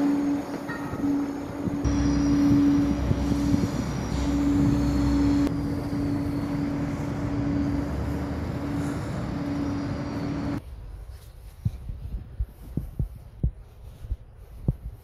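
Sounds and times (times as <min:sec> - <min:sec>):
rushing traffic noise: 0:00.0 - 0:11.3
constant hum: 0:00.0 - 0:15.0.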